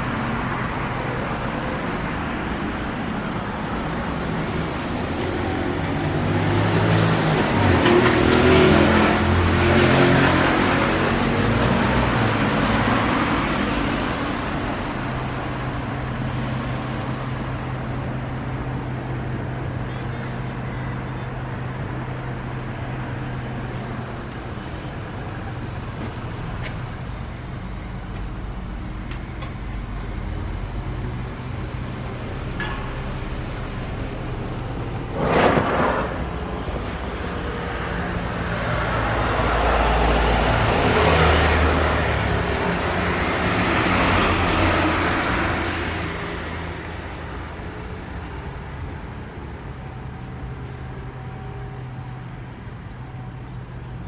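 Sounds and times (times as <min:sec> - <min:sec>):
road noise: 0:00.0 - 0:54.0
motor vehicle passing: 0:34.6 - 0:39.6.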